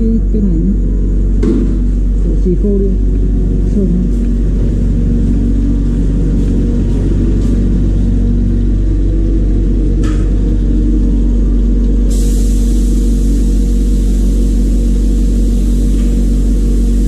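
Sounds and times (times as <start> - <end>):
air compressor humming: 0.0 - 17.0
spray gun air hissing: 12.0 - 17.0.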